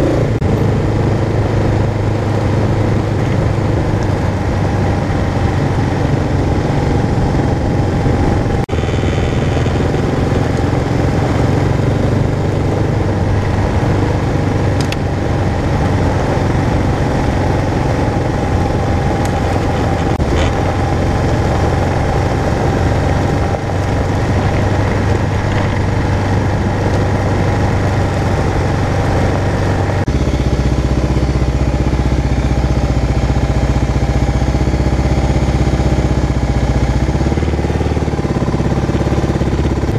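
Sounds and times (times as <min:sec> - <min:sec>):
motorcycle engine running: 0:00.0 - 0:39.9
motorcycle idling: 0:00.0 - 0:39.9
road and wind noise: 0:00.0 - 0:39.9.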